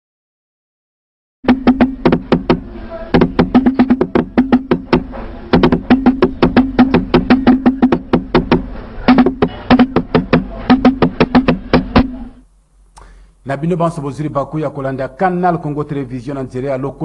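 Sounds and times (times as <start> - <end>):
sharp percussion strikes: 1.4 - 12.4.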